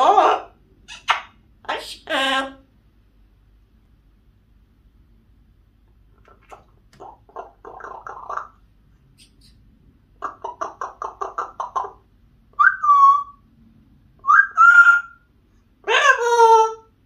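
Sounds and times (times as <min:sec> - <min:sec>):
parrot whistled calls: 0:12.5 - 0:13.4, 0:14.2 - 0:16.9.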